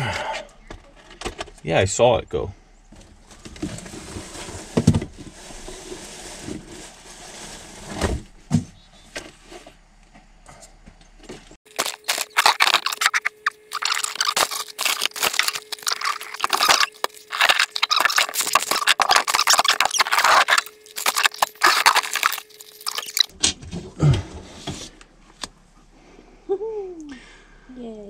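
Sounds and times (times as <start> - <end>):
faint steady hum: 8.7 - 28.0
hands rummaging through items: 11.7 - 23.3.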